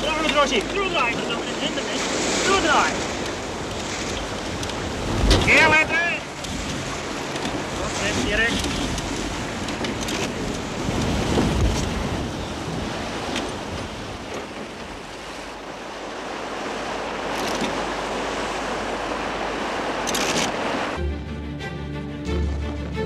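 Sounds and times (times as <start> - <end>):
wind buffeting microphone: 0.0 - 21.0
water rushing along a hull: 0.0 - 23.0.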